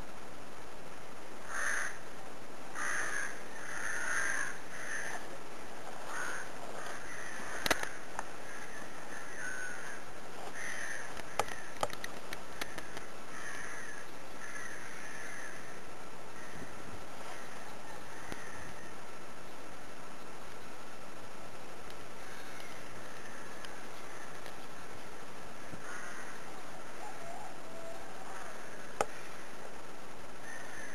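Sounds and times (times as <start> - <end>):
crows cawing: 1.4 - 2.1, 2.7 - 19.1, 22.2 - 24.9, 25.6 - 29.6, 30.4 - 30.9
sharp clicks: 7.6 - 8.3, 11.1 - 13.6.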